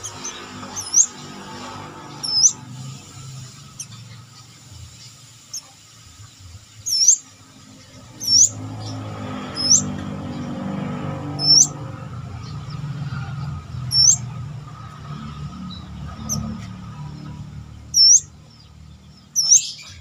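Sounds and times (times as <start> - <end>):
sunbird call notes: 0.0 - 1.4, 2.1 - 4.3, 6.7 - 7.3, 7.9 - 9.9, 11.4 - 11.8, 13.9 - 14.4, 17.9 - 18.4, 19.2 - 20.0.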